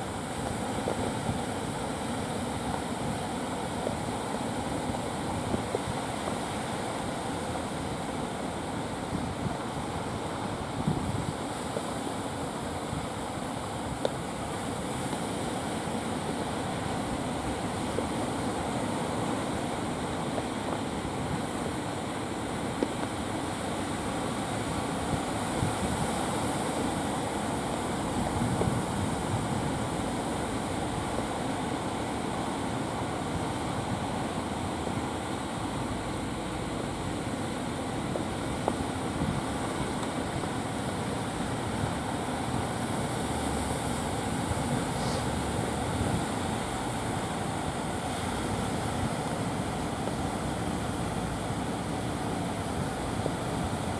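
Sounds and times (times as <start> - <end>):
surf washing onto beach: 0.0 - 53.9
wind on microphone: 8.8 - 14.7, 24.6 - 32.4, 33.0 - 53.9
boat motor droning: 26.9 - 53.9.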